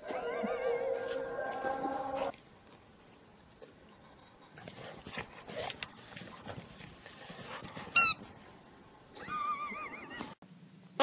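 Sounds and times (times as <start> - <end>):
squeaky toy squealing: 8.0 - 8.2.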